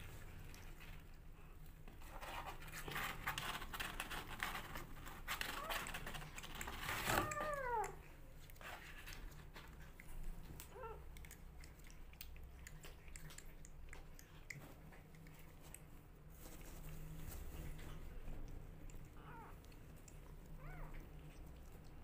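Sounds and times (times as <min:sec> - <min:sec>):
kitten suckling at a bottle: 0:06.0 - 0:16.2
kitten meowing: 0:07.1 - 0:08.0.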